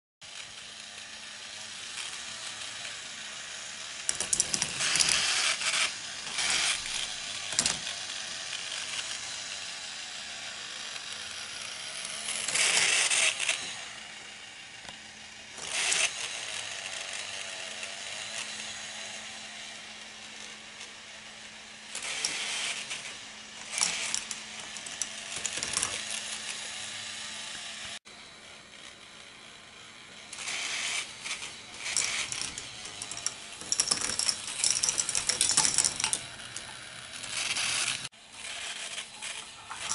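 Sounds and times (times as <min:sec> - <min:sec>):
motor whir: 0:00.3 - 0:39.9
balls clattering through plastic pieces: 0:04.1 - 0:05.5, 0:23.6 - 0:26.1, 0:31.0 - 0:38.1, 0:39.2 - 0:39.9.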